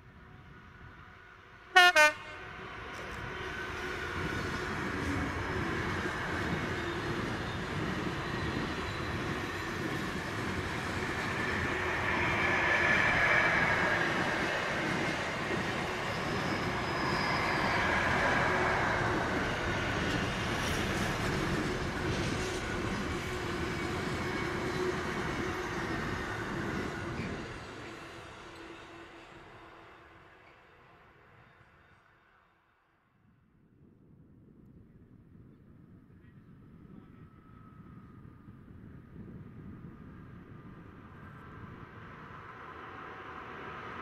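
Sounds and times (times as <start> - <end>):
freight train wheels rumbling: 1.7 - 29.7
high whine: 5.0 - 26.5.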